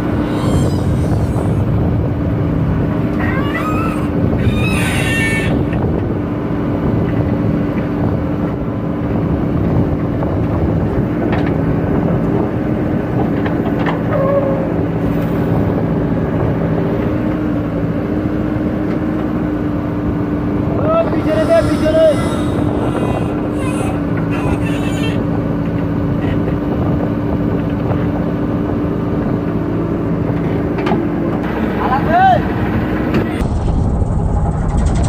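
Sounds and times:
diesel engines running: 0.0s - 35.0s
brief high squeaks: 0.2s - 1.6s.

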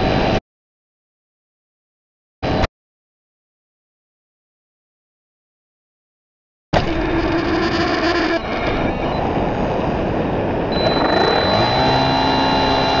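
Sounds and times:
wind rushing over microphone: 8.3s - 13.0s
electric motor and propeller whine: 10.7s - 13.0s.

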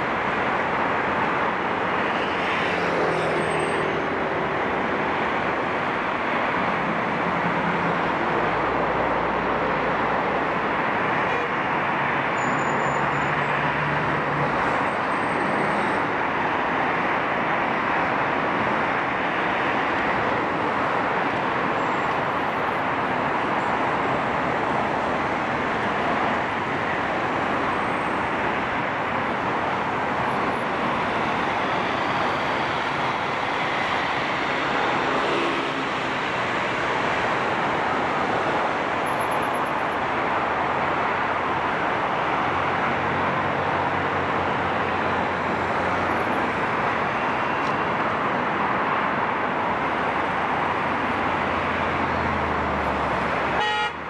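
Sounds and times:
highway traffic noise: 0.0s - 54.0s
car horn toot: 53.6s - 54.0s.

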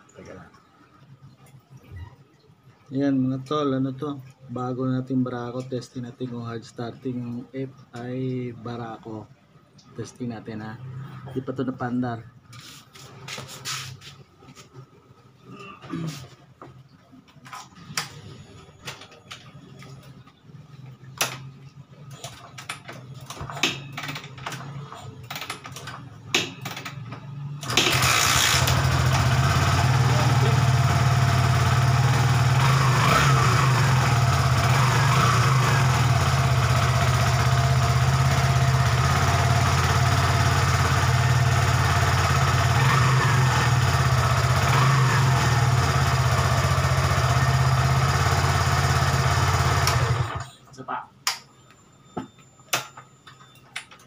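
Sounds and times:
engine kick-start clicks and taps: 27.6s - 29.0s, 49.8s - 50.5s
motorcycle engine idling: 27.9s - 50.4s.

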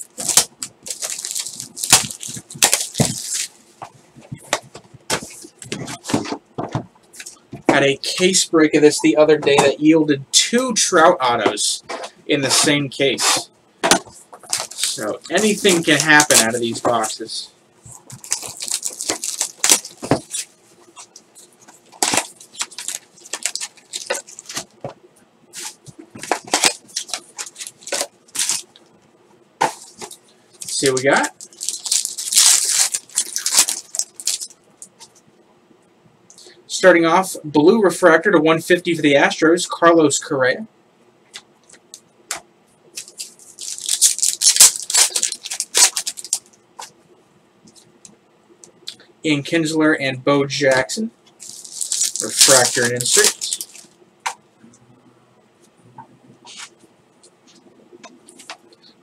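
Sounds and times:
plastic shrink wrap crinkling: 0.0s - 3.6s, 14.4s - 17.1s, 17.9s - 24.8s, 25.9s - 28.8s, 29.8s - 35.1s, 43.0s - 46.6s, 51.4s - 54.0s
cardboard rustling: 0.1s - 3.6s, 14.1s - 17.1s, 18.0s - 24.8s, 31.4s - 34.5s, 51.4s - 53.9s.

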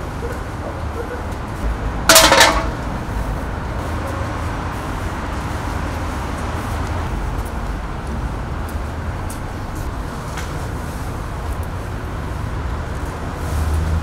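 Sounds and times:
traffic rumble: 0.0s - 14.0s
metal can clattering on concrete: 2.1s - 2.9s.

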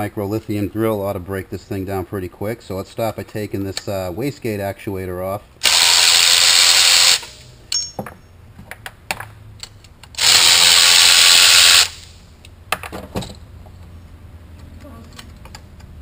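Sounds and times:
electric ratchet running: 5.6s - 7.5s, 10.2s - 12.1s.

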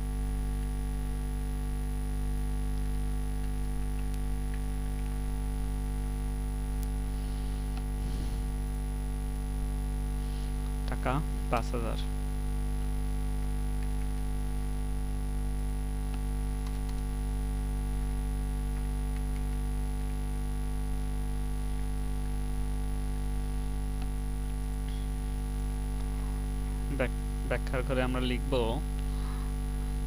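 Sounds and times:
electrical mains hum: 0.0s - 30.0s
computer keys clicking: 3.4s - 5.2s, 13.8s - 14.3s, 16.1s - 17.2s, 18.7s - 19.6s.

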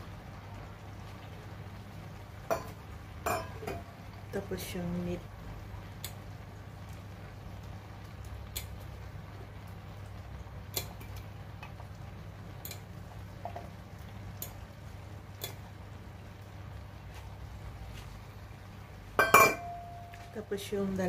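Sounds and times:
light sharp ticks: 6.0s - 6.2s, 8.2s - 8.8s, 12.6s - 12.9s, 14.3s - 14.6s, 15.4s - 15.6s.

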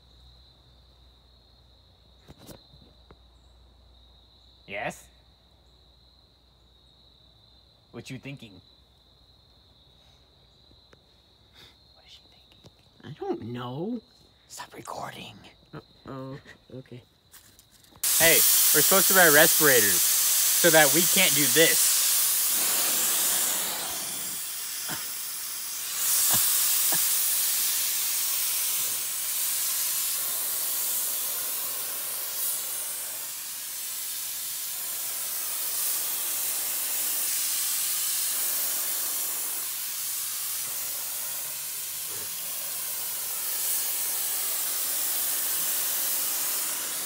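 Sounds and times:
paint sprayer hissing: 17.3s - 47.0s.

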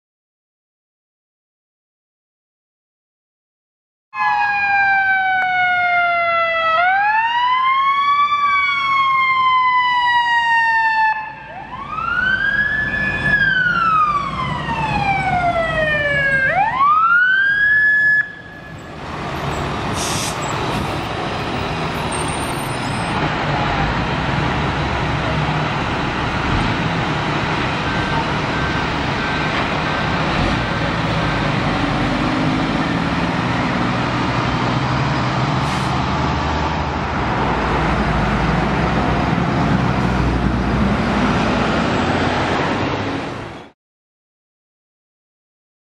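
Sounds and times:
siren wailing: 4.2s - 19.6s
passing vehicle engines and tyres: 18.3s - 43.8s.

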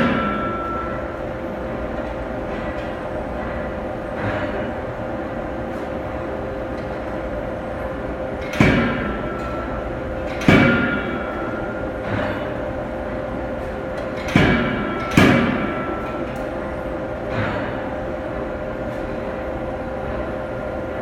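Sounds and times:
machine hum: 0.0s - 21.0s
forging hammer bangs with ringing: 8.6s - 11.9s.

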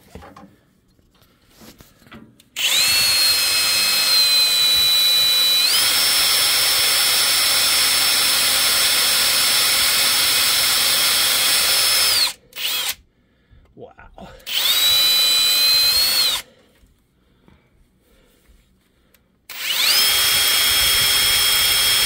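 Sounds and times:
power drill drilling into metal: 2.6s - 13.0s, 14.5s - 16.4s, 19.5s - 22.0s.

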